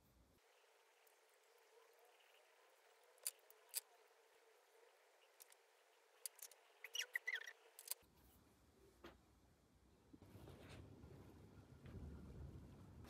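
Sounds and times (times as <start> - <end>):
light squeaks: 6.3 - 8.0.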